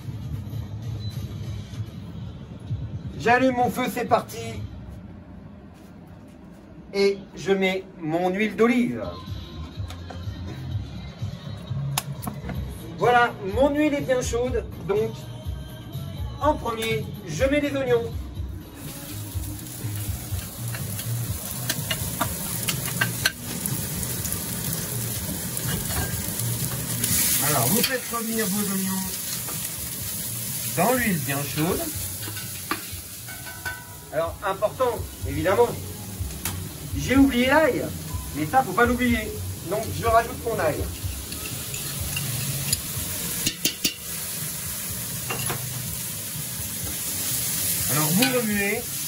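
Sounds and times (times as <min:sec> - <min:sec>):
onions sizzling in hot oil: 0:18.8 - 0:49.0.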